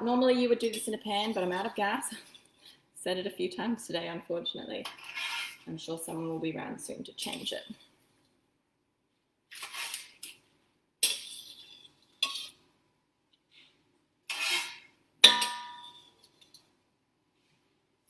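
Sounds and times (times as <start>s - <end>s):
utensil scraping cookware: 4.8s - 5.7s, 9.5s - 10.3s, 11.0s - 12.6s, 14.3s - 16.4s.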